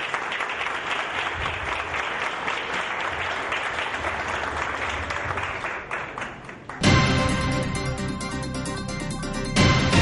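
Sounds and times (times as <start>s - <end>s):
crowd applauding: 0.0s - 7.0s.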